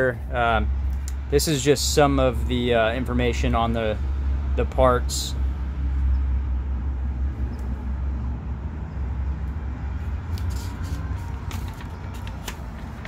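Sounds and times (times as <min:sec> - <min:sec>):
low outdoor rumble: 0:00.0 - 0:13.0
paper rustling: 0:10.3 - 0:13.0.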